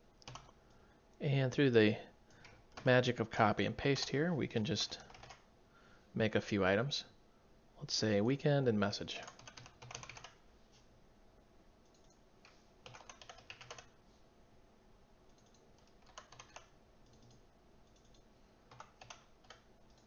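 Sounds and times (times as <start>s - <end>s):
faint keyboard typing: 0.2s - 1.2s, 2.3s - 3.0s, 4.7s - 5.5s, 9.1s - 10.4s, 11.8s - 14.0s, 15.3s - 20.0s.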